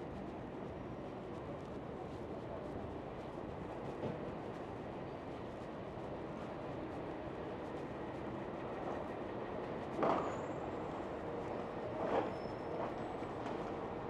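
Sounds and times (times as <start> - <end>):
city traffic rumble: 0.0 - 14.0.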